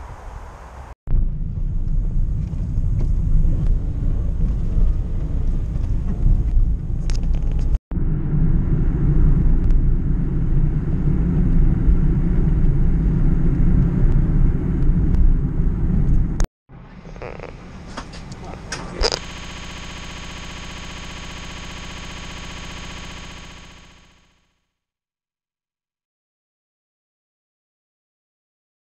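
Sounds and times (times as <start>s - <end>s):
car road and wind noise: 0.0s - 16.5s.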